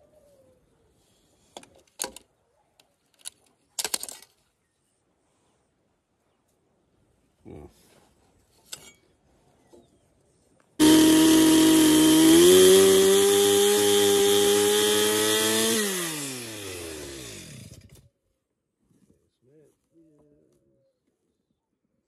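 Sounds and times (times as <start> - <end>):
chainsaw running at full throttle: 10.8 - 18.0.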